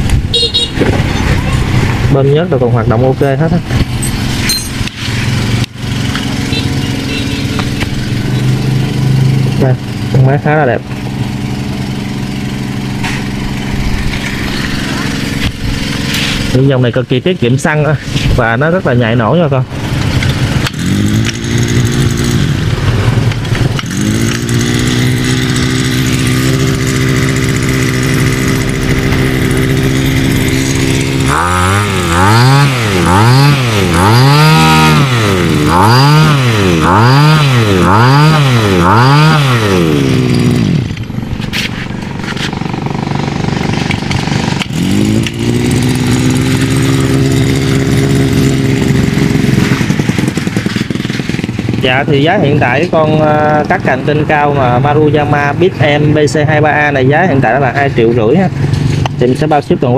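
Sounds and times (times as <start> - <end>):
small two-stroke engine revving: 0.0 - 59.9.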